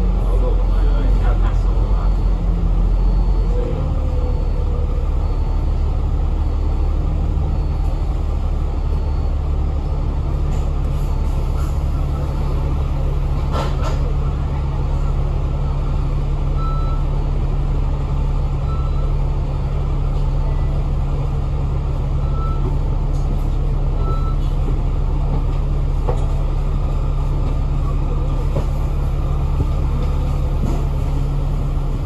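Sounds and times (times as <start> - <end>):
bus engine drone: 0.0 - 32.0.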